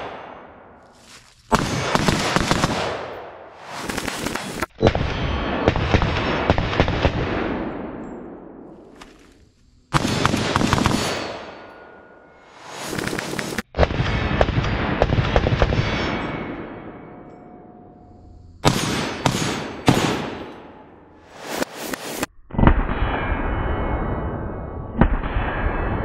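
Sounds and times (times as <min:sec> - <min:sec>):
rapid rifle fire with echo: 0:01.5 - 0:08.0, 0:09.9 - 0:11.6, 0:18.6 - 0:20.5.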